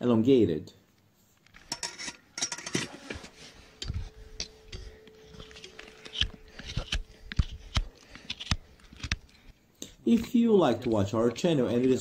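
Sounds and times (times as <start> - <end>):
hoof knife scraping: 1.6 - 12.0
faint steady tone: 1.7 - 6.6.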